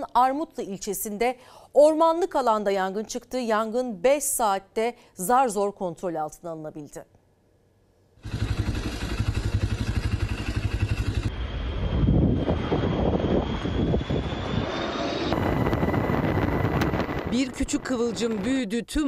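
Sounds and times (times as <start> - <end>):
pulsing aircraft engine and rotor: 8.2 - 18.5.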